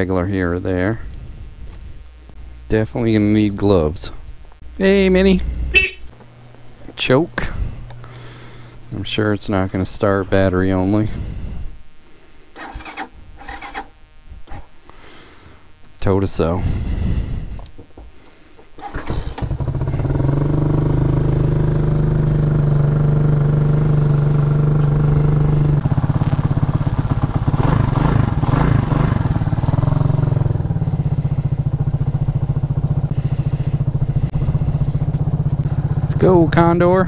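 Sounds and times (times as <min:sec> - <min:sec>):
motorcycle engine starting and idling: 0:12.6 - 0:14.6, 0:18.8 - 0:37.0.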